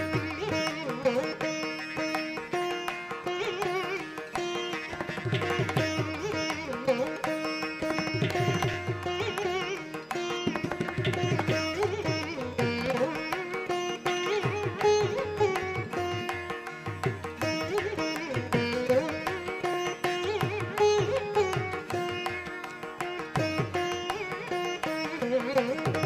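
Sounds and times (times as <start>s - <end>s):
plucked string melody: 0.0s - 26.0s.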